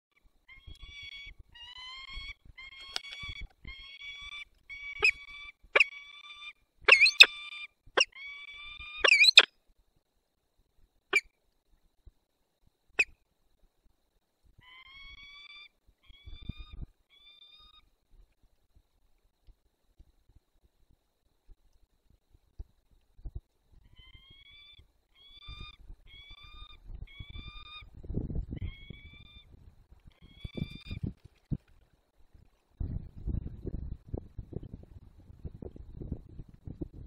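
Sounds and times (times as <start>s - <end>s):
falcon sharp chips: 6.9s - 7.3s, 9.1s - 9.5s
falcon wailing calls: 6.9s - 7.4s, 8.0s - 9.5s.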